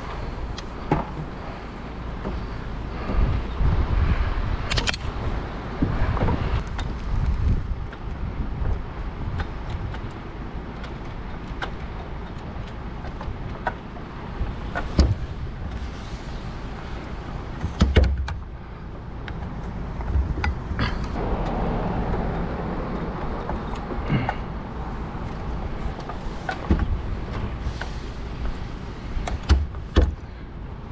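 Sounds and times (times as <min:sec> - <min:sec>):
truck engine rumbling: 0:00.0 - 0:30.9
clicks and knocks of handled pole: 0:06.2 - 0:15.8, 0:19.2 - 0:24.5, 0:25.2 - 0:28.6, 0:29.2 - 0:30.3.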